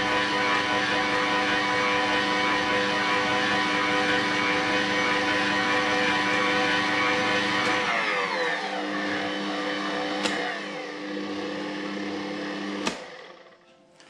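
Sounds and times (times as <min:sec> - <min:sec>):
electric mixer motor running: 0:00.0 - 0:13.6
mixer switch click: 0:12.8 - 0:13.3.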